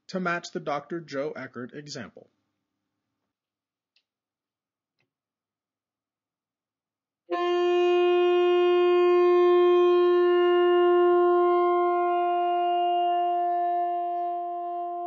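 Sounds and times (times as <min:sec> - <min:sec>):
saxophone long tone: 0:07.3 - 0:15.0.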